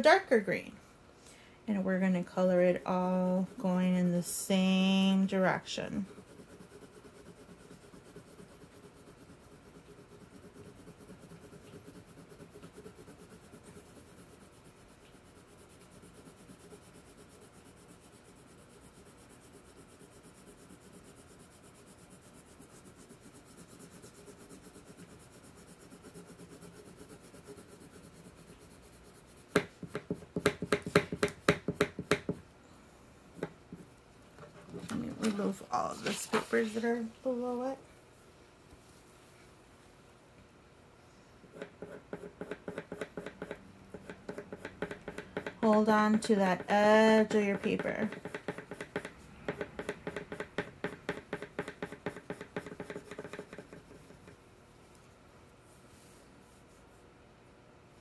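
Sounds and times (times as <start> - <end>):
crayon scratching on paper: 2.4 - 32.3, 41.5 - 54.4.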